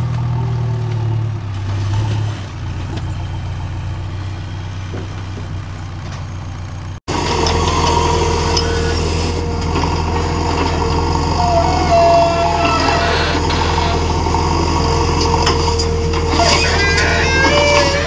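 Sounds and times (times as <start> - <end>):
diesel engine running: 0.0 - 18.0
steady whine: 7.1 - 18.0.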